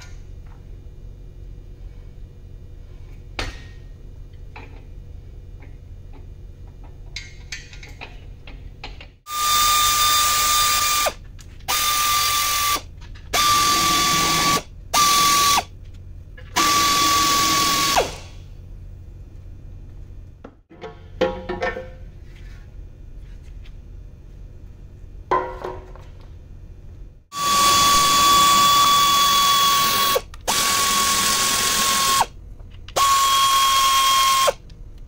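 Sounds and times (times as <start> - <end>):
pneumatic air ratchet whining: 9.3 - 15.7, 16.5 - 18.4, 27.3 - 34.6.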